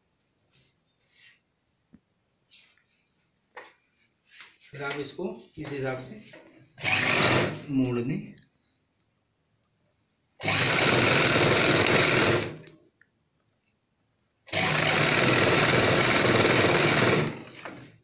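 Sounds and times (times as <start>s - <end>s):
sewing machine stitching: 6.8s - 7.7s, 10.4s - 12.7s, 14.5s - 18.0s.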